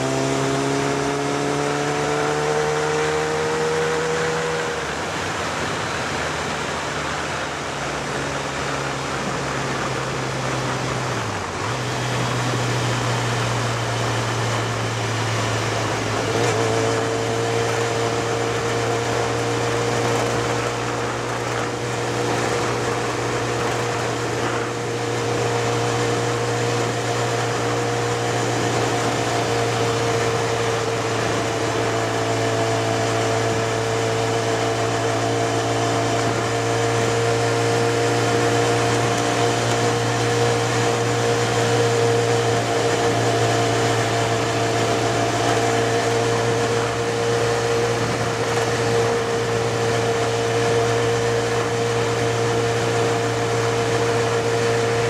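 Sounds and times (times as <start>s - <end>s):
motorcycle engine running: 0.0s - 55.0s
road noise: 0.0s - 55.0s
rushing wind: 0.0s - 55.0s.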